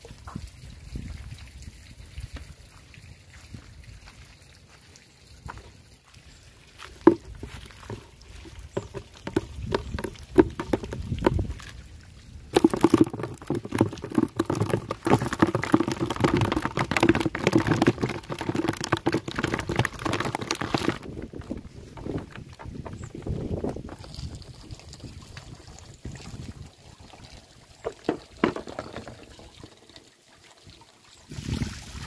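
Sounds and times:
fish splashing in water: 0:12.5 - 0:26.2.

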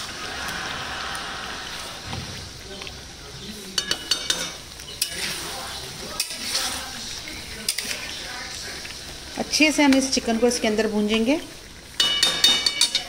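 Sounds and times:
chicken sizzling in pan: 0:00.0 - 0:13.0
spatula clinking against pan: 0:03.8 - 0:05.3, 0:12.0 - 0:13.0.

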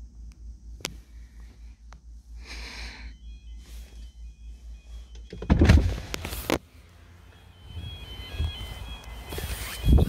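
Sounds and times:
car engine idling: 0:00.0 - 0:09.8
level crossing alarm tones: 0:02.8 - 0:06.4, 0:07.0 - 0:10.0.

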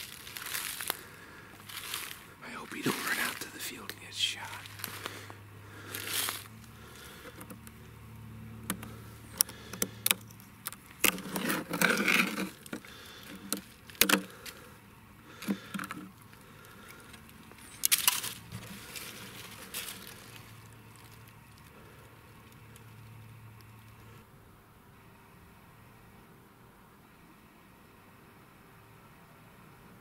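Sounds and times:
footsteps in dry leaves: 0:00.0 - 0:07.2, 0:17.6 - 0:22.0.

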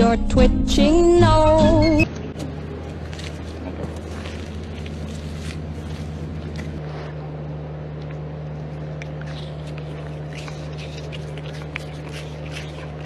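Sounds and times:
steady low hum: 0:00.0 - 0:13.0
animal chewing food: 0:02.7 - 0:13.0.

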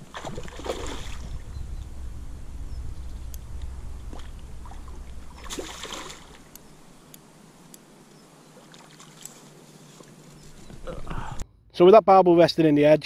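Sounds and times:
fish thrashing and splashing: 0:00.0 - 0:01.4, 0:05.4 - 0:06.4
wind rumble on microphone: 0:00.0 - 0:07.0.

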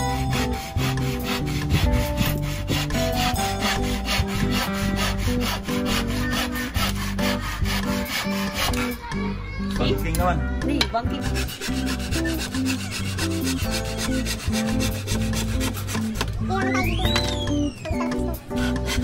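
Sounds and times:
handsaw cutting wood: 0:00.0 - 0:09.0, 0:11.1 - 0:16.4, 0:18.4 - 0:19.0
background music: 0:00.0 - 0:19.0.

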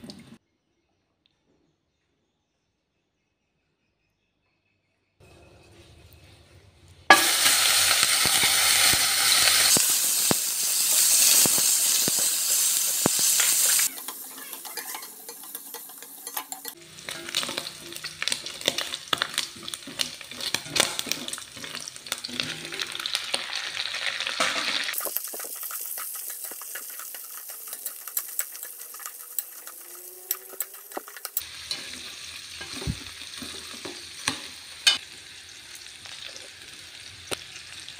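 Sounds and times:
pork sizzling in hot oil: 0:07.1 - 0:37.9
spatula scraping a pan: 0:10.8 - 0:23.8, 0:24.4 - 0:34.0.

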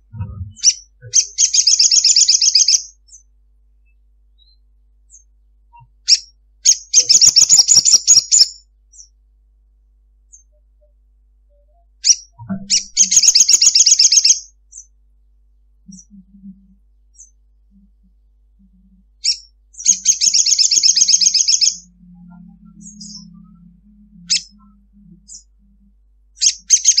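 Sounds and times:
bird chattering trill: 0:00.1 - 0:03.2, 0:05.8 - 0:09.1, 0:12.0 - 0:14.9, 0:15.9 - 0:17.3, 0:19.2 - 0:25.8, 0:26.4 - 0:27.0
sharp bird chips: 0:06.1 - 0:09.1, 0:12.8 - 0:14.8, 0:19.3 - 0:21.8.

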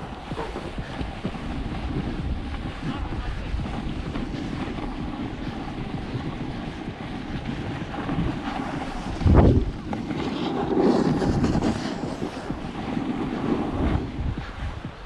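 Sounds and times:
edges scraping on packed snow: 0:00.0 - 0:14.8
wind rushing over microphone: 0:00.0 - 0:15.0.

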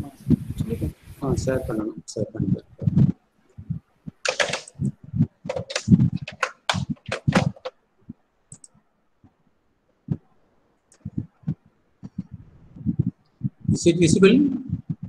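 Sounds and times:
man's voice in broken bursts: 0:01.2 - 0:03.1, 0:13.7 - 0:14.8
faint clicks: 0:08.5 - 0:09.4.

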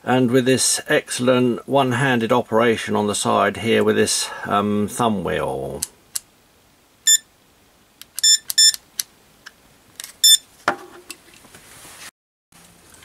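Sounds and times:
multimeter beeping: 0:07.1 - 0:07.3, 0:08.2 - 0:08.8, 0:10.2 - 0:10.4.

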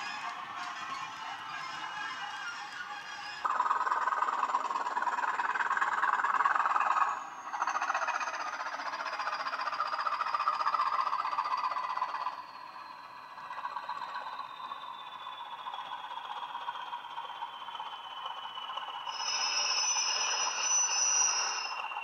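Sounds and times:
thin high falling whistle: 0:11.9 - 0:22.0.

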